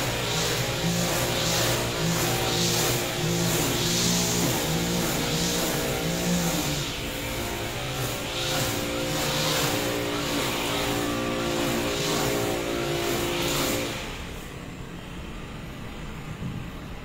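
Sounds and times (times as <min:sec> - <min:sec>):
motor engine humming: 0:00.0 - 0:06.8.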